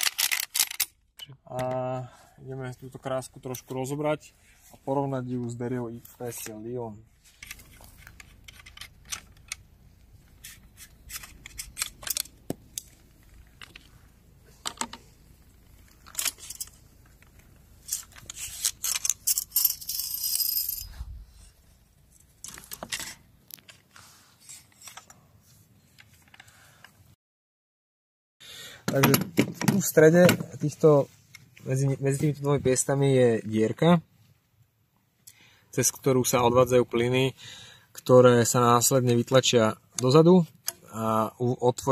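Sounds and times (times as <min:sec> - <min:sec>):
metal clicks and clinks: 0:00.0 - 0:01.7, 0:07.4 - 0:09.6, 0:11.1 - 0:13.0, 0:15.6 - 0:20.9
parts set down on wooden table: 0:28.9 - 0:30.4.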